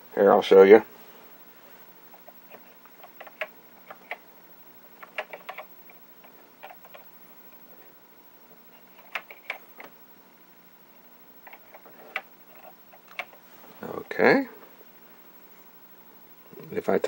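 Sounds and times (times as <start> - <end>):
keyboard keys clicking: 5.0 - 5.7.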